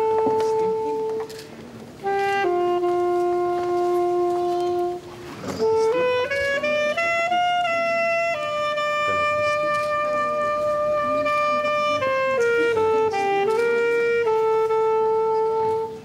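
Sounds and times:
slow solo wind instrument melody: 0.0 - 16.0.

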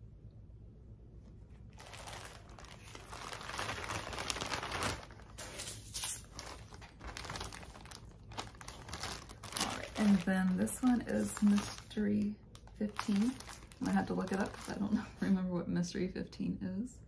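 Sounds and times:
plastic packaging crinkling: 1.5 - 15.3
plastic bag pulled open: 1.6 - 15.2.

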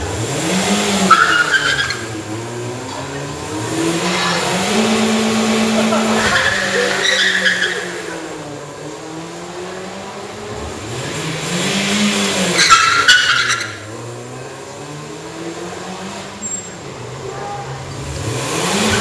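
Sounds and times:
race car engine revving: 0.0 - 19.0
tyre squeal: 1.0 - 2.1, 6.2 - 8.1, 12.5 - 13.8, 16.4 - 17.8.

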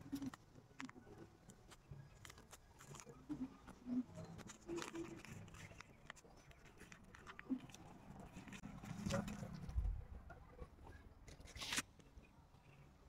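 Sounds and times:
plastic wrap crinkling: 0.0 - 9.4.

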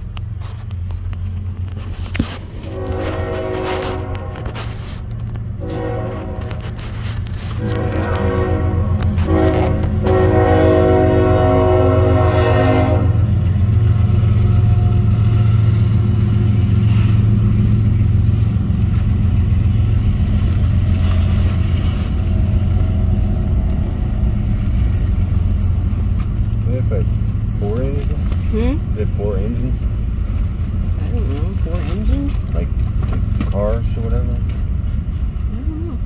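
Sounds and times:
locomotive engines rumbling: 0.0 - 36.0
locomotive horn blasts: 2.6 - 5.0, 5.6 - 13.5.

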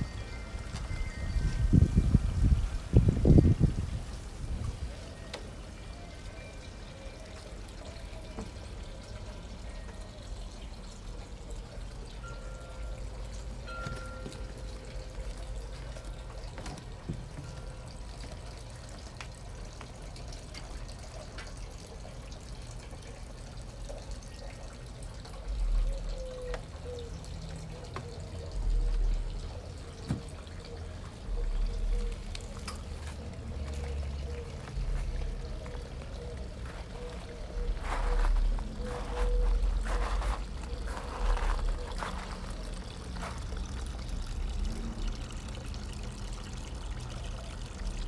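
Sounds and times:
water trickling: 0.0 - 48.0
wind gusts buffeting microphone: 1.3 - 4.8.

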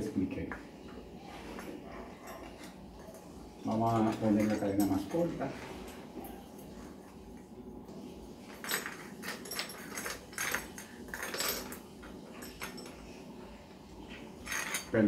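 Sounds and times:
metal chain links clinking: 1.5 - 6.8, 8.4 - 13.2, 14.1 - 15.0.

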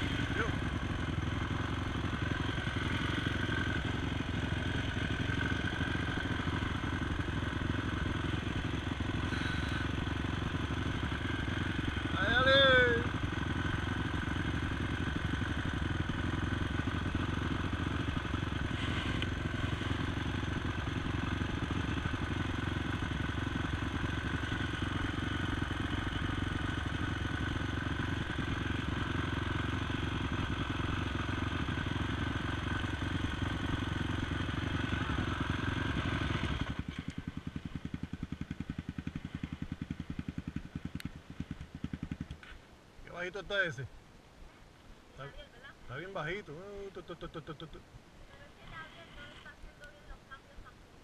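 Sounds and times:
atv engine running: 0.0 - 51.0.

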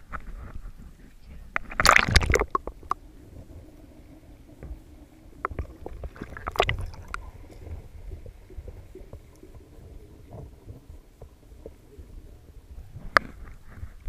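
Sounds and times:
sharp underwater clicks and knocks: 0.0 - 3.0, 5.4 - 7.8, 12.9 - 14.0
muffled underwater rumble: 0.0 - 14.0.

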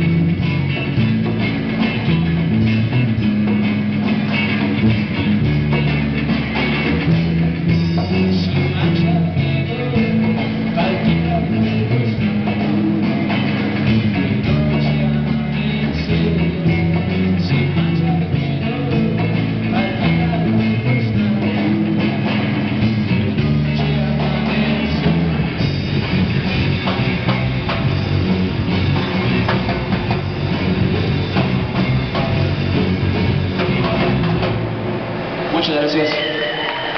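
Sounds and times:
steady bass line: 0.0 - 36.1
drums: 0.0 - 36.9
electric guitars: 0.0 - 36.9.

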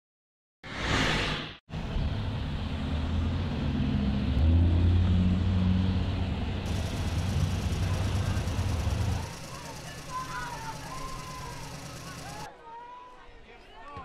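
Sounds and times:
minibus engine running: 5.4 - 12.5.

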